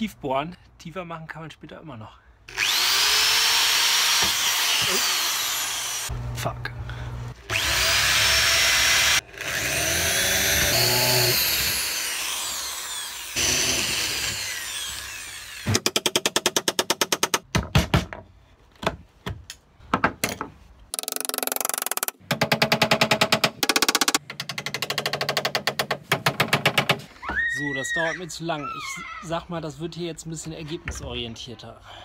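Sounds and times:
electric drill boring into wood: 0:02.5 - 0:06.1, 0:07.4 - 0:15.8
hammer striking wood chisel: 0:18.8 - 0:27.0.

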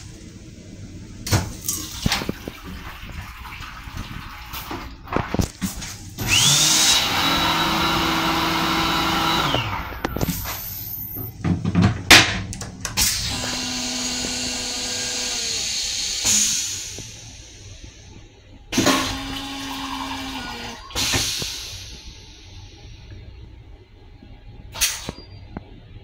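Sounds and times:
mechanical hum: 0:00.0 - 0:26.0
toilet flush surges: 0:01.6 - 0:11.2, 0:13.0 - 0:23.2
toilet seat clicks and knocks: 0:11.4 - 0:13.0.

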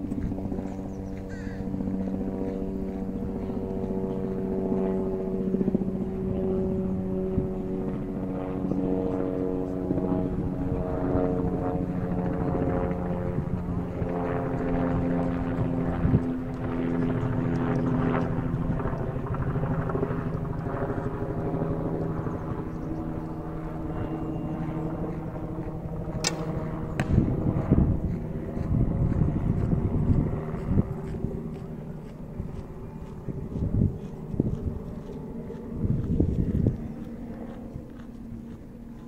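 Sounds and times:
aircraft engine drone: 0:00.0 - 0:39.0
bowstring snap: 0:26.2 - 0:27.2
sharp crack: 0:26.2 - 0:27.3.

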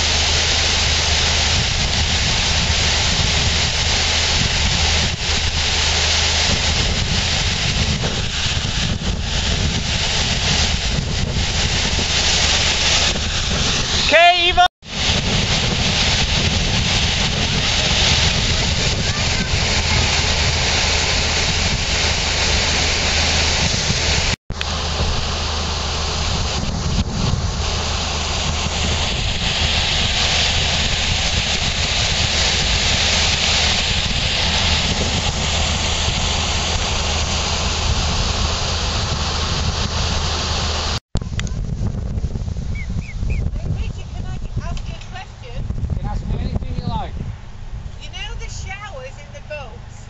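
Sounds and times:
water gushing into lock: 0:00.0 - 0:14.2, 0:14.8 - 0:41.0.

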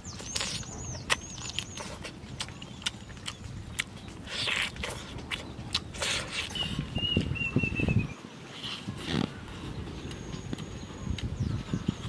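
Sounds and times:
wet lip-smacks while chewing: 0:00.2 - 0:07.4
slurp: 0:04.2 - 0:06.9.

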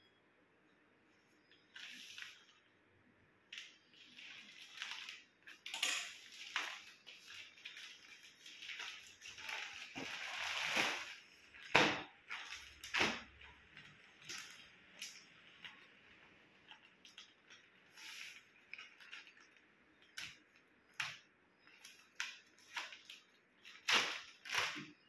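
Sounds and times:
sharp plastic crackles: 0:03.5 - 0:25.0
plastic bag crinkling: 0:03.6 - 0:20.2.

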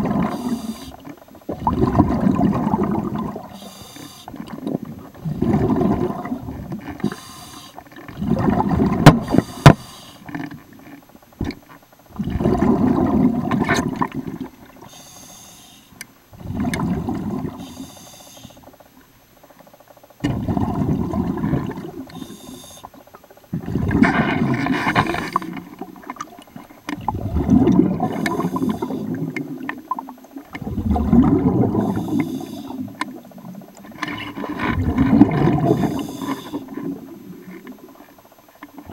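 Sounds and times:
exhaled bubbles rumbling: 0:00.0 - 0:03.7, 0:04.3 - 0:07.1, 0:07.8 - 0:09.6, 0:10.4 - 0:14.9, 0:16.3 - 0:17.7, 0:20.2 - 0:22.2, 0:23.4 - 0:38.9
regulator hiss on inhale: 0:00.2 - 0:01.1, 0:03.5 - 0:04.5, 0:07.0 - 0:07.9, 0:09.2 - 0:10.4, 0:14.8 - 0:16.1, 0:17.5 - 0:18.7, 0:22.1 - 0:23.1, 0:28.1 - 0:29.3, 0:31.7 - 0:33.0, 0:35.6 - 0:36.9.

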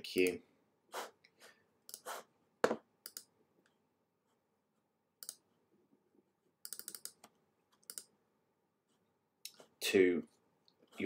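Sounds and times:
computer mouse clicking: 0:03.0 - 0:03.8, 0:05.2 - 0:05.4, 0:06.6 - 0:08.1.

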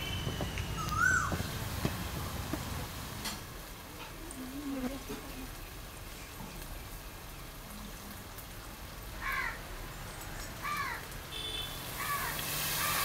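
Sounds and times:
crow cawing: 0:09.2 - 0:09.6, 0:10.6 - 0:11.1, 0:12.0 - 0:13.0.

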